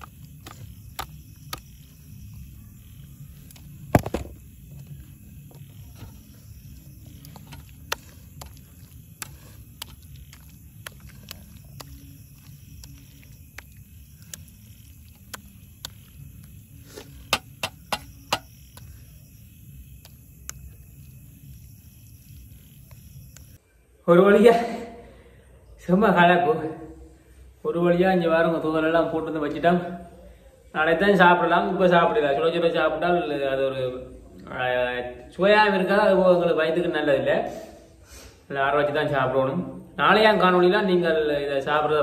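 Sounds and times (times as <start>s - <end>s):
spoon scooping sticky food: 0.0s - 2.4s, 4.8s - 19.0s.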